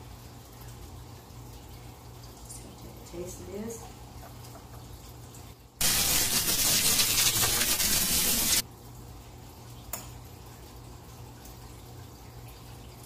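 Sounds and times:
hissing rushing noise burst: 5.8 - 8.6.

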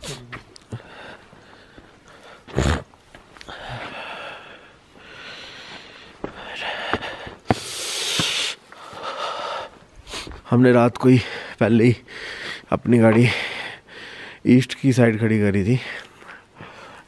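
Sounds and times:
person breathing: 0.0 - 2.6, 3.4 - 10.4, 11.2 - 14.4, 15.9 - 17.0
loud rush of breath-like noise: 3.5 - 10.4.

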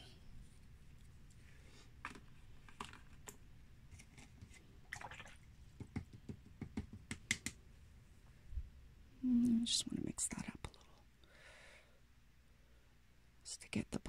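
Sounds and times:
clicks and taps on a tabletop: 5.8 - 7.6.

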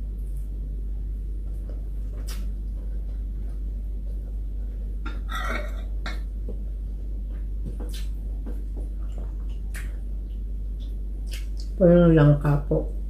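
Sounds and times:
low hum: 0.0 - 13.0
spoon clinking on ceramic plates: 5.1 - 6.2.

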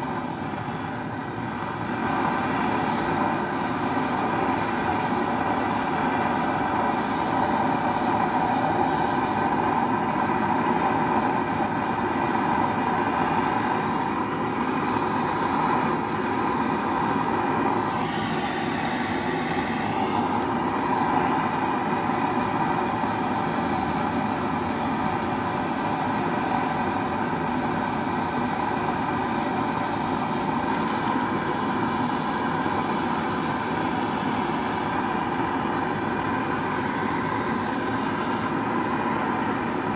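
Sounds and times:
gas torch hissing: 0.0 - 39.9.

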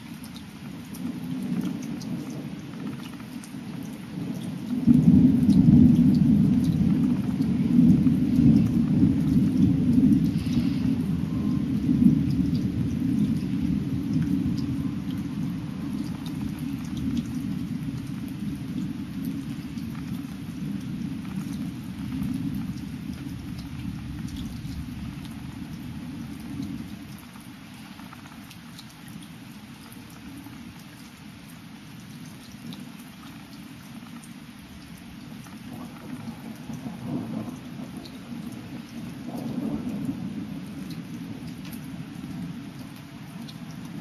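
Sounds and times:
raindrops ticking: 0.0 - 44.0
thunder rumbling: 3.8 - 27.1, 35.6 - 44.0.

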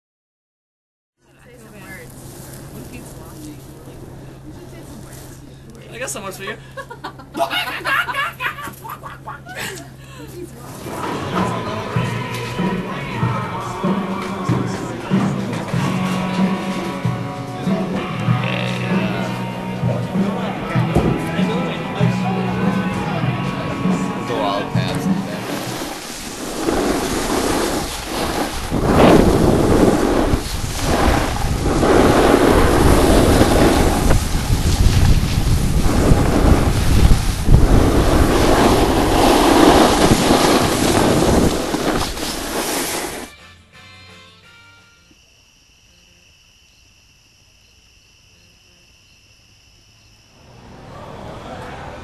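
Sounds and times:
rushing noise: 10.6 - 43.3, 50.3 - 52.0
crickets chirping: 11.6 - 20.6, 25.4 - 43.2, 44.4 - 51.7
wind buffeting microphone: 25.4 - 43.3.

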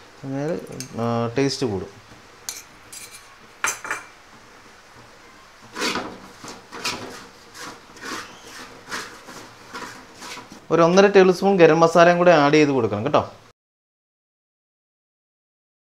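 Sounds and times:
spatula scraping metal pot: 5.6 - 10.7.

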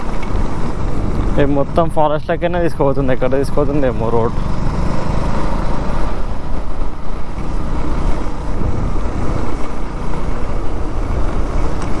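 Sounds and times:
motorcycle engine: 0.0 - 12.0
wind buffeting microphone: 4.3 - 12.0.

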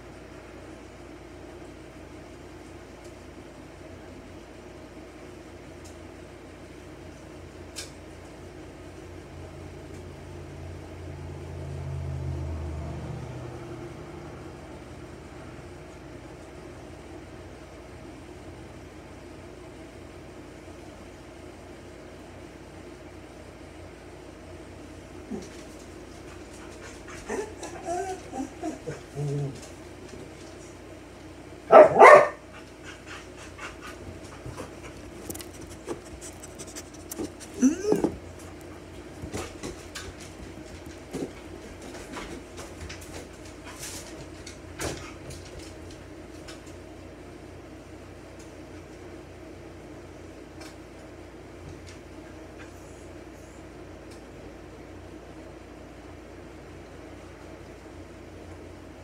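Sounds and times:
dog barking: 31.7 - 32.4.

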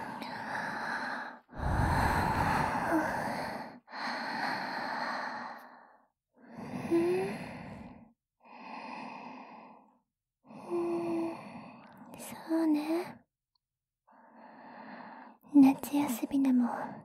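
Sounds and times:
woman breathing slowly: 0.0 - 12.2, 14.1 - 15.5.

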